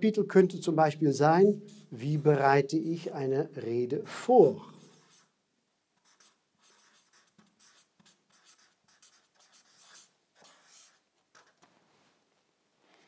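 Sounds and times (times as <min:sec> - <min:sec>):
marker scratching on paper: 0:01.5 - 0:02.0, 0:04.6 - 0:05.4, 0:06.0 - 0:11.7.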